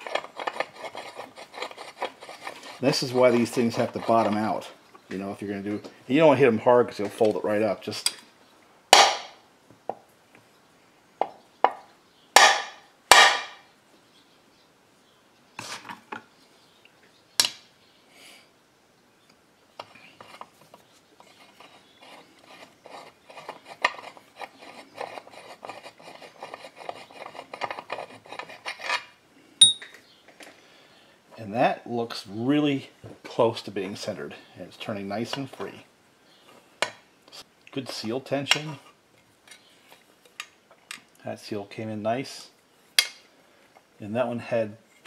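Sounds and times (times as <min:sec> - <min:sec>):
small metal clicks and rubbing: 0:00.0 - 0:05.1, 0:19.8 - 0:30.4
steel rods clinking: 0:29.6 - 0:29.9.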